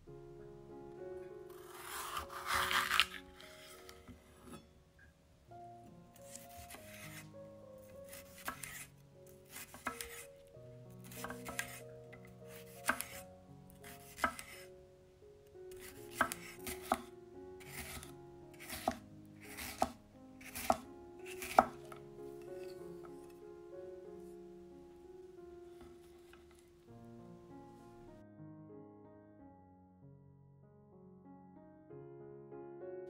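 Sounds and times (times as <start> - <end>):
soft background music: 0.0 - 30.0
knife slicing pepper on board: 1.7 - 3.2, 6.3 - 7.2, 8.1 - 8.9, 9.5 - 10.3, 11.0 - 11.8, 12.5 - 13.2, 13.8 - 14.6, 15.7 - 22.0.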